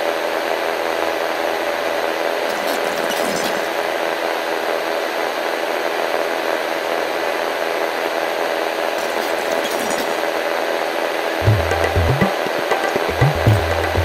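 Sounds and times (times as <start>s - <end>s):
low drum-like thumps: 11.4s - 14.0s.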